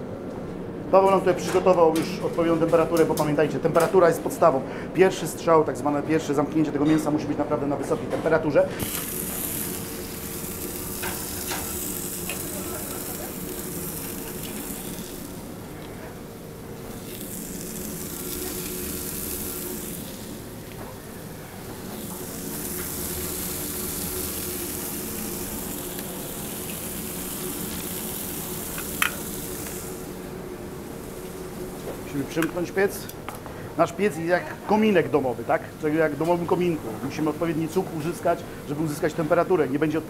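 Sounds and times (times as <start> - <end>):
steady low hum: 0.0 - 40.0
steaks sizzling in a pan: 8.8 - 30.3.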